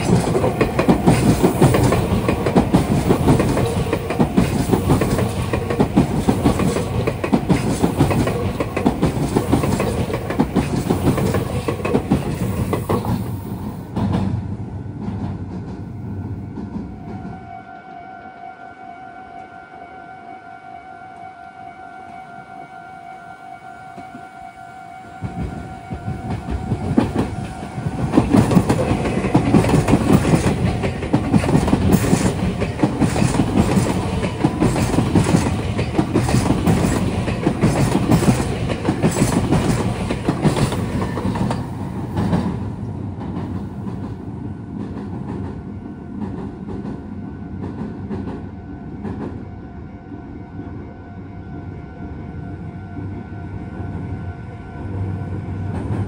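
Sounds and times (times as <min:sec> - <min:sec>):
train wheels clattering over rails: 0:00.0 - 0:17.3, 0:25.2 - 0:49.4.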